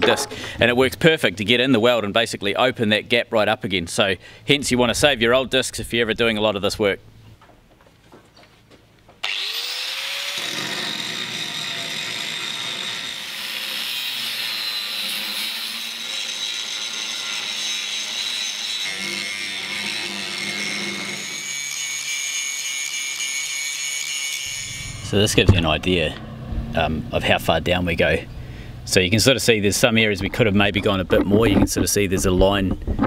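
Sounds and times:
angle grinder grinding steel: 0:09.2 - 0:28.1.

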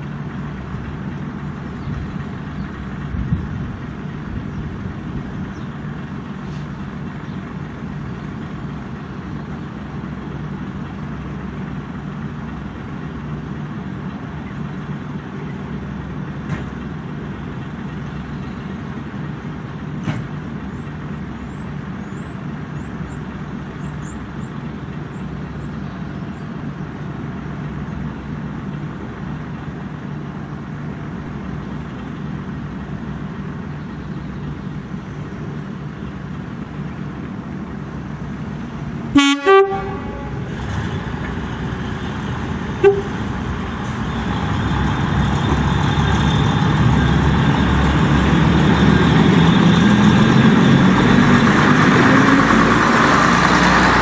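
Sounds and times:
diesel train engine idling: 0:00.0 - 0:54.0
train horn blasts: 0:39.1 - 0:40.8, 0:42.8 - 0:43.3.

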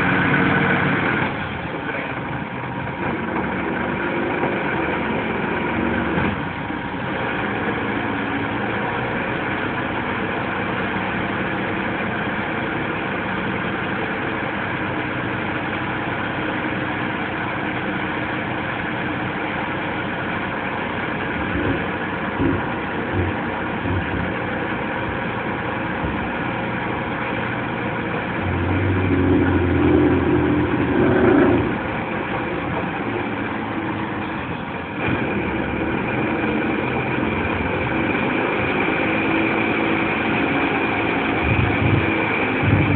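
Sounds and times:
diesel truck engine running: 0:00.0 - 0:42.9
hydraulic arm hauling bin: 0:00.0 - 0:42.9.

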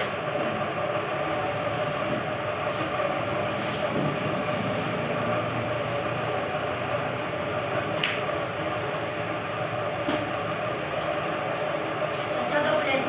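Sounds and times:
steady mechanical hum: 0:00.0 - 0:13.0
snooker balls clicking: 0:07.9 - 0:08.3.

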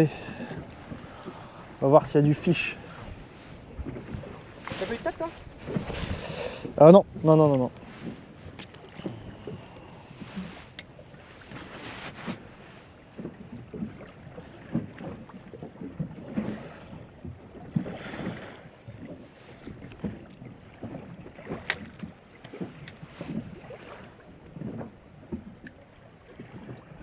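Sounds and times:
wind on microphone: 0:00.0 - 0:10.8
waves lapping against boat: 0:00.0 - 0:27.0.

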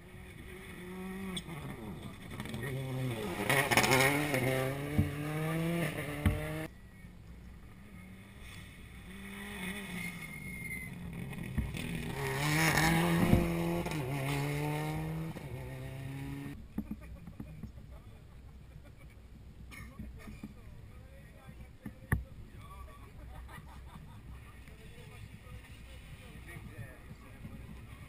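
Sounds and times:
rally cars revving past: 0:00.1 - 0:06.7, 0:07.7 - 0:16.6.

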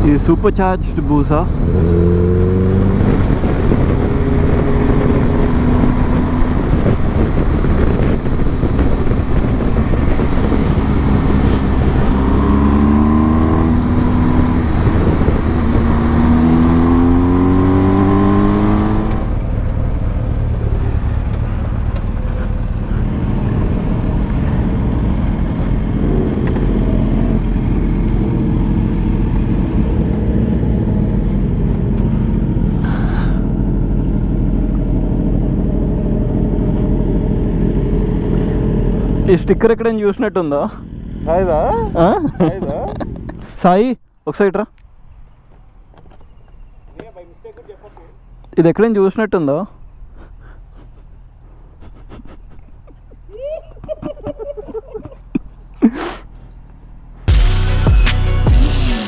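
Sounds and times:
motorcycle engines: 0:00.0 - 0:59.0
wind rush: 0:01.5 - 0:21.2.

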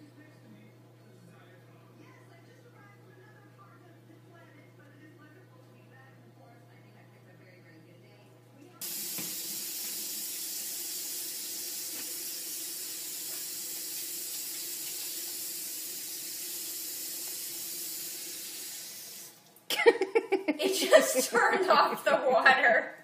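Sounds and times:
faucet water splashing on fur: 0:08.8 - 0:19.4.

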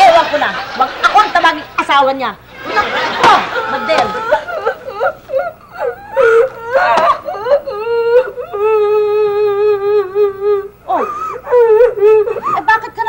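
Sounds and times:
woman sobbing and wailing: 0:02.7 - 0:13.0.

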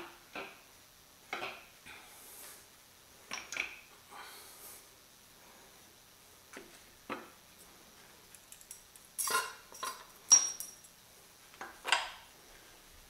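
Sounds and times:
metallic clinks and knocks: 0:08.3 - 0:11.0.

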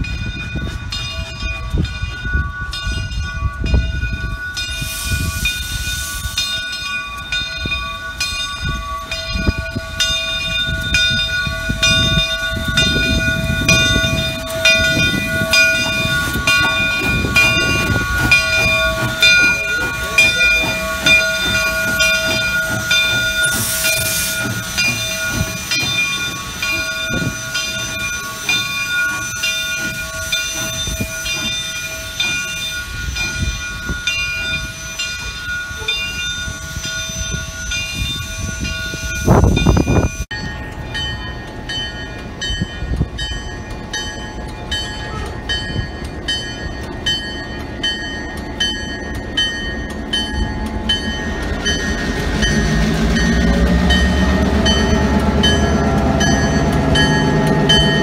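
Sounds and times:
steam locomotive running: 0:00.0 - 0:58.0
steam hiss: 0:04.6 - 0:06.8, 0:12.3 - 0:39.2
loud rumble: 0:50.2 - 0:58.0.

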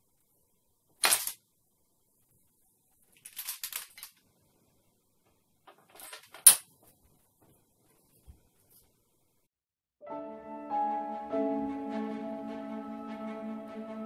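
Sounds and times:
clinking rattle: 0:03.2 - 0:04.2, 0:05.7 - 0:06.7.

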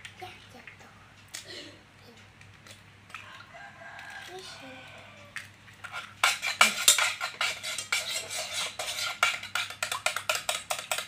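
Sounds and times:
metal spoon clinking in saucepan: 0:05.9 - 0:11.0.

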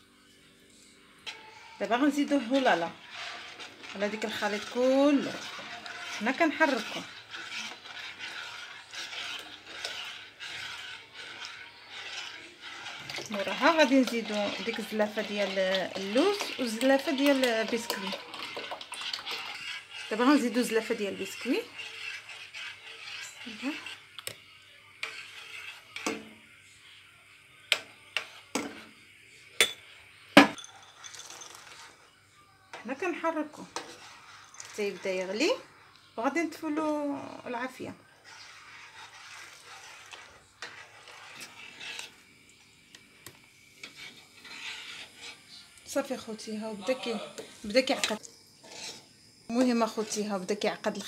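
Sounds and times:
metal spoon scraping saucepan: 0:01.2 - 0:26.8, 0:27.6 - 0:28.9, 0:29.6 - 0:43.0, 0:43.7 - 0:51.0
spoon and bowl clinking on saucepan: 0:29.6 - 0:31.6.

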